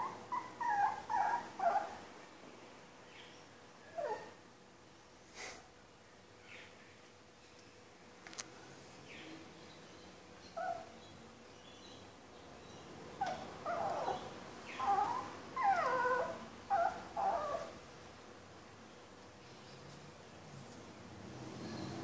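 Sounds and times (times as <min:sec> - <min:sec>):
puppy whining and whimpering: 0:00.0 - 0:02.0, 0:03.9 - 0:04.4, 0:10.5 - 0:10.9, 0:13.2 - 0:17.8.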